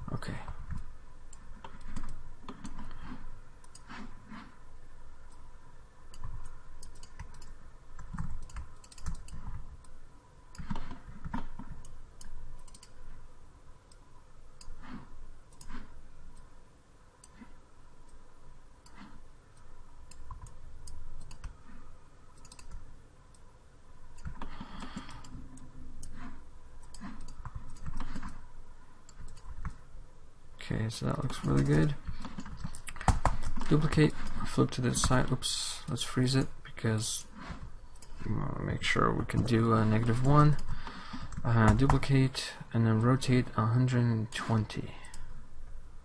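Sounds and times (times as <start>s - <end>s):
computer mouse clicks: 0.5s - 4.5s, 6.1s - 13.1s, 14.6s - 16.5s, 17.2s - 18.2s, 18.8s - 23.4s, 24.1s - 28.4s, 29.0s - 29.8s, 39.3s - 42.1s.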